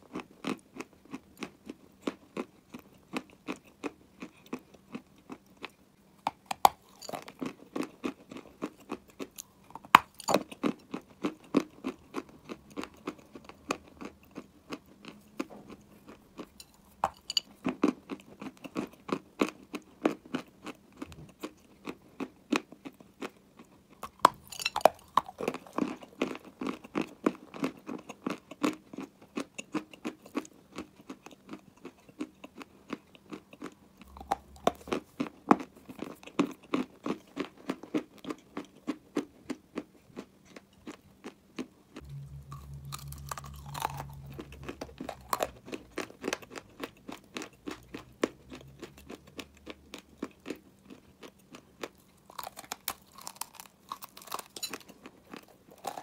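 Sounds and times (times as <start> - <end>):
chewing dry clay crunches: 0.0 - 56.0.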